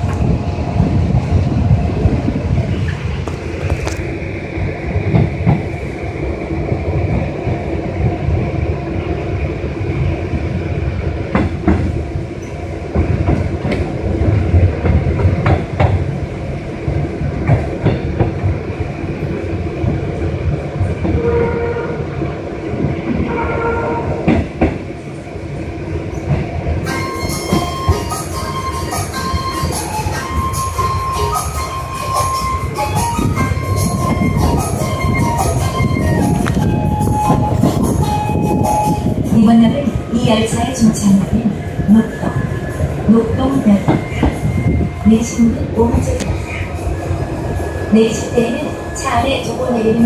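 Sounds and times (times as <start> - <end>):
train rumble and whine: 0.0 - 50.0.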